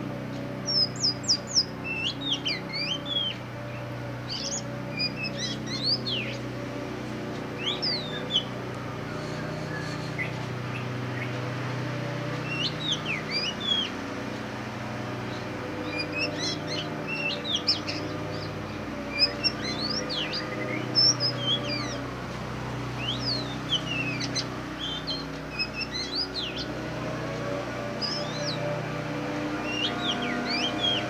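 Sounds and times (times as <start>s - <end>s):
steady low hum: 0.0s - 31.0s
bird singing whistled notes: 0.6s - 6.5s, 7.5s - 11.4s, 12.4s - 14.0s, 15.3s - 22.0s, 22.9s - 26.8s, 27.8s - 28.8s, 29.4s - 31.0s.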